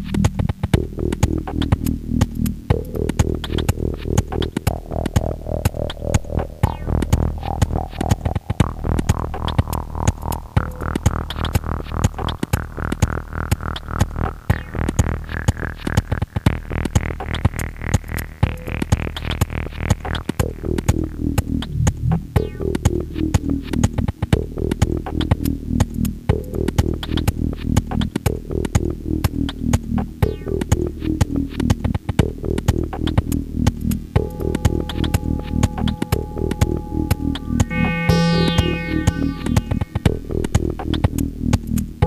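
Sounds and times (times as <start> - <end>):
drum machine clicks: 0.0 - 23.0, 23.8 - 41.9
low synth bass hum: 0.7 - 11.9, 33.2 - 42.0
rising synth sweep: 34.2 - 40.3.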